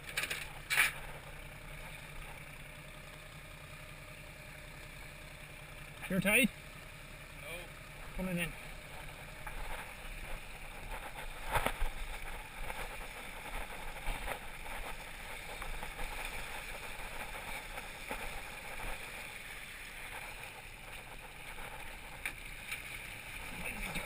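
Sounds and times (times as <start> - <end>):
steady low hum: 0.0 - 24.0
water rushing and splashing: 16.3 - 24.0.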